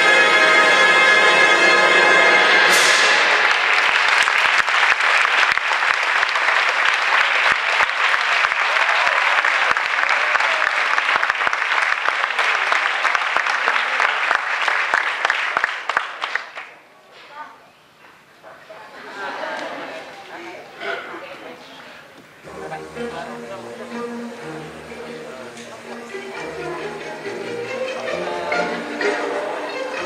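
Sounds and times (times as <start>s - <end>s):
audience clapping: 2.7s - 16.8s.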